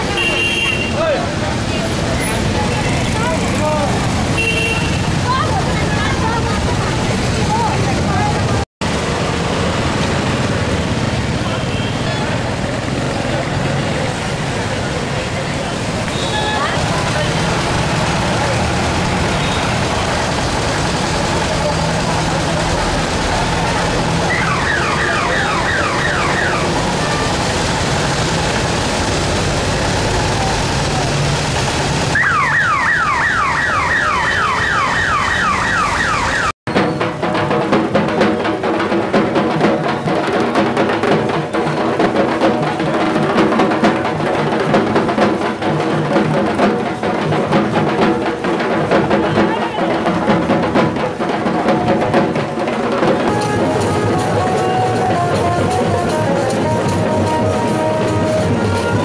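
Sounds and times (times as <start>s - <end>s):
loud drum-driven music: 0.0s - 59.0s
street noise: 0.0s - 59.0s
falling electronic warning tone: 32.2s - 36.5s.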